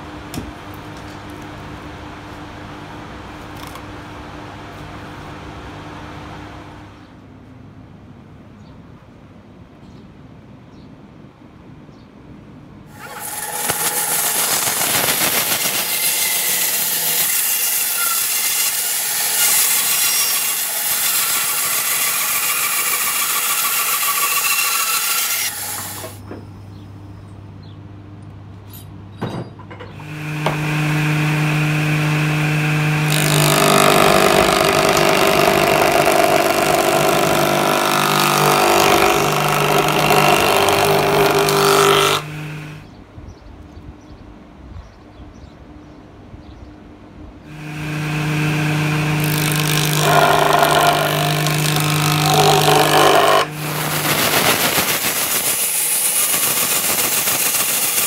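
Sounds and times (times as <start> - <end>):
band saw cutting log: 12.9 - 26.2, 30.0 - 42.8, 47.5 - 58.0
table saw whining: 12.9 - 26.2, 30.0 - 42.8, 47.5 - 58.0
low motor hum: 30.0 - 42.9, 47.5 - 54.7.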